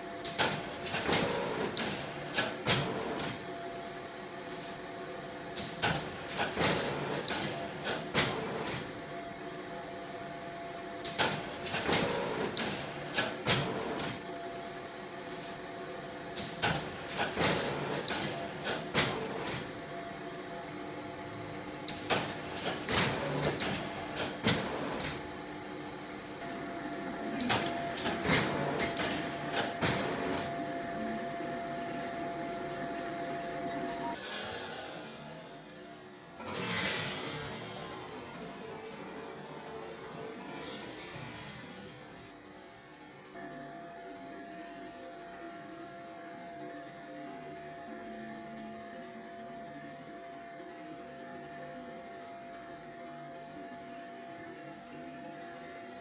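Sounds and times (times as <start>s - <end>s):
steady motor hum: 0.0s - 56.0s
printing press clanks and clicks: 0.2s - 3.6s, 5.5s - 9.0s, 11.0s - 14.4s, 16.3s - 19.8s, 21.8s - 25.4s, 26.4s - 30.8s.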